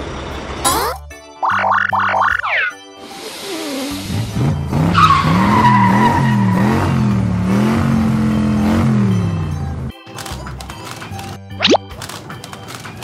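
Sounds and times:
cartoon truck engine revving: 0.6s - 9.9s.

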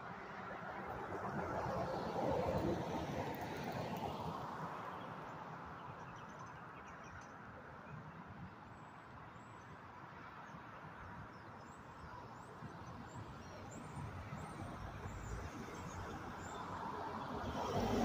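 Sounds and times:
vehicles driving past: 13.8s - 18.0s.

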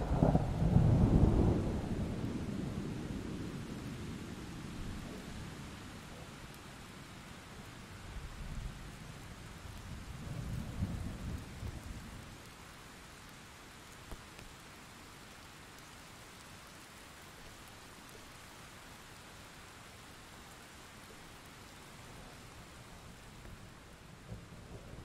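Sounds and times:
thunder rumbling: 0.0s - 3.9s
steady rain: 0.0s - 25.0s.

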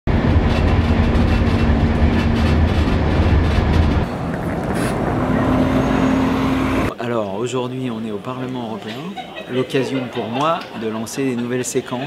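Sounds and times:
bus passing: 0.1s - 6.9s
steady engine hum: 0.1s - 6.9s
train rumble and rail clatter: 0.1s - 6.9s.

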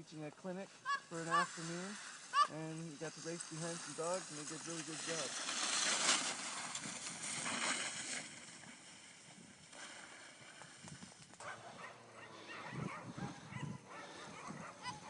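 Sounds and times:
dogs yipping and barking: 11.4s - 15.0s.

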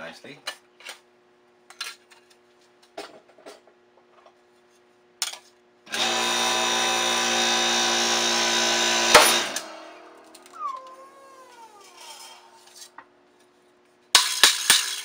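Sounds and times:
electric motor humming and whining: 5.9s - 10.0s.

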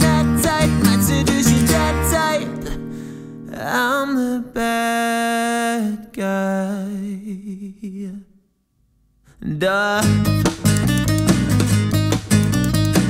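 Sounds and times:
upright double bass: 0.0s - 2.6s, 10.0s - 13.0s
acoustic guitars picking: 0.0s - 3.8s, 10.0s - 13.0s.

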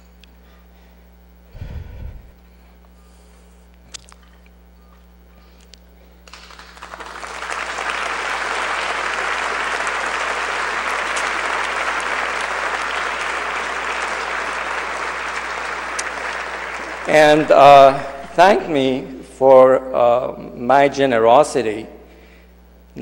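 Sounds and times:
audience applauding: 6.2s - 18.7s.

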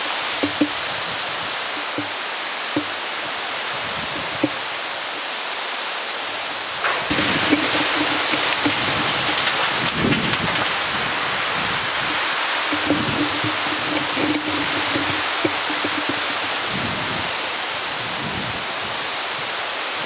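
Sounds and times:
rain and wind hiss: 0.0s - 20.0s.

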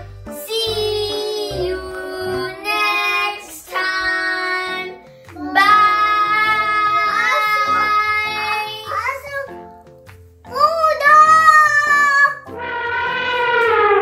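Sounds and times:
children singing: 0.3s - 8.8s.

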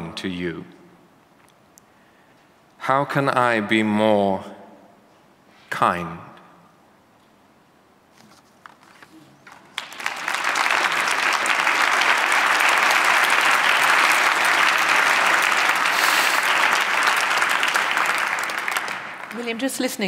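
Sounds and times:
audience applause: 9.4s - 19.6s.

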